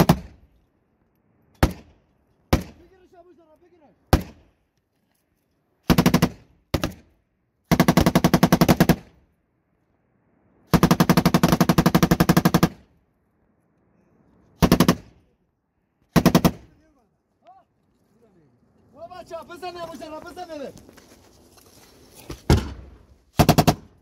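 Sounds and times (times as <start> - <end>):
machine gun firing bursts: 5.9 - 7.0, 7.7 - 9.0, 10.7 - 12.8, 14.6 - 15.1, 16.1 - 16.7, 23.4 - 24.0.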